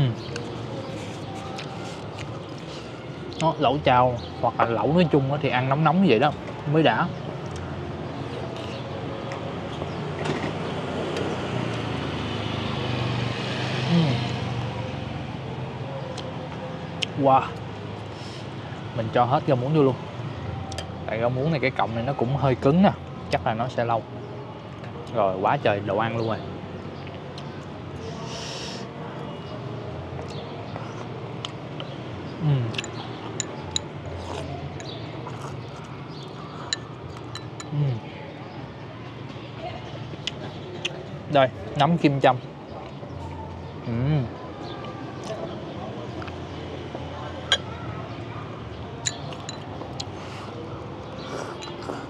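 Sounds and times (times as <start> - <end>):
vehicle passing: 7.7 - 19.0
utensils clinking on bowls: 36.7 - 37.7, 49.0 - 49.7, 51.5 - 52.0.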